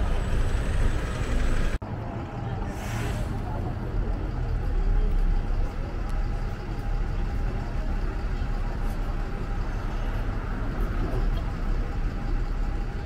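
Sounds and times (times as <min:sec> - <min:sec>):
passing traffic rumble: 0:00.0 - 0:13.0.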